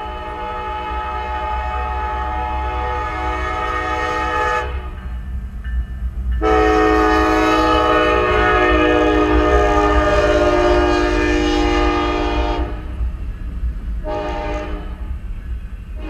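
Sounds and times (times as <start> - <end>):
locomotive air horn blowing: 0.0 - 5.0, 6.4 - 12.9, 14.0 - 15.0
low rumble of locomotive: 0.0 - 16.0.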